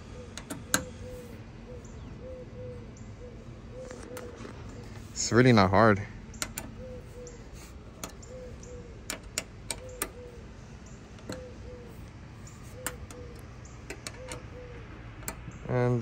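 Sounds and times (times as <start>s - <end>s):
hex key clicking on bolt: 0.3s - 1.2s, 6.3s - 15.7s.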